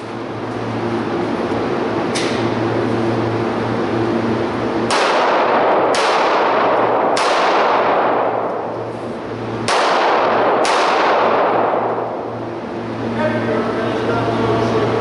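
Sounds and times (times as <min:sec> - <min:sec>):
pistol shots echoing indoors: 0:04.8 - 0:08.8, 0:09.6 - 0:12.2.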